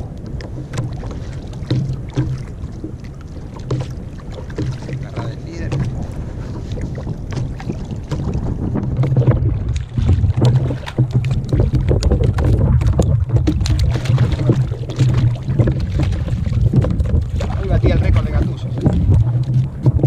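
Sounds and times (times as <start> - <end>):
wind rumbling on microphone: 0.0 - 20.0
fish splashing at surface: 9.0 - 20.0.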